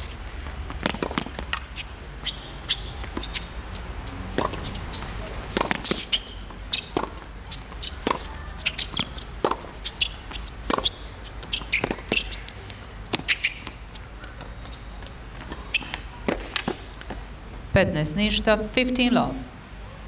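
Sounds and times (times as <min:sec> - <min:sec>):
tennis balls bouncing and struck: 0:00.0 - 0:17.2
high squeaks: 0:01.5 - 0:03.5, 0:04.4 - 0:16.8.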